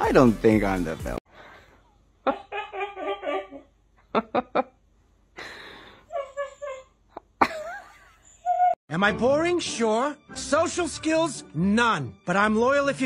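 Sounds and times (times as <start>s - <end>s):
person laughing: 2.2s - 4.8s, 5.4s - 8.8s.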